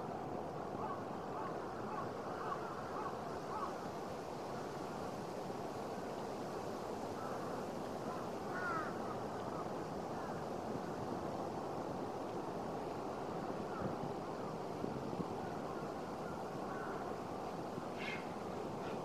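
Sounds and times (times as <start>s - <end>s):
faint short calls: 17.9s - 19.0s.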